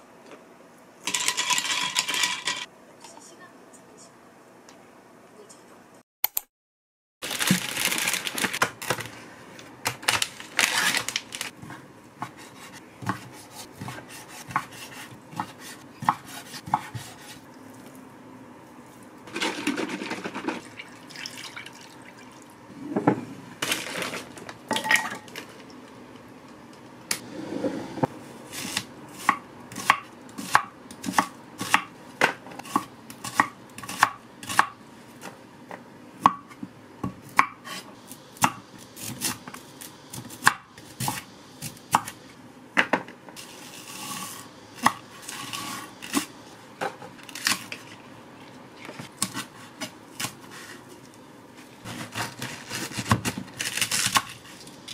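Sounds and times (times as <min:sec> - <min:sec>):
clatter of bowls and packaging: 0:07.2 - 0:09.3, 0:09.9 - 0:11.5, 0:19.3 - 0:20.7, 0:23.6 - 0:25.7
knife chopping on wooden board: 0:12.2 - 0:17.4.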